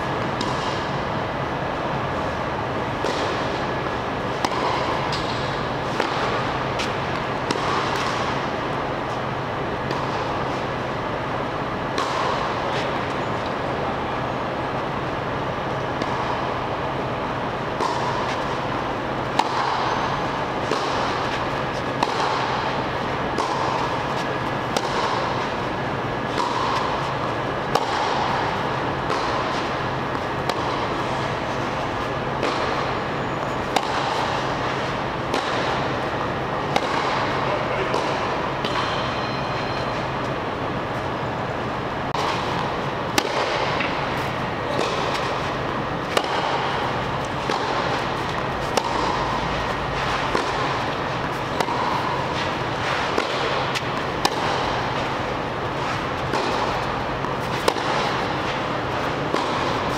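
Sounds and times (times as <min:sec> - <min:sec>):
rackets striking tennis ball: 0:00.0 - 0:59.9
steady hum: 0:00.0 - 0:59.9.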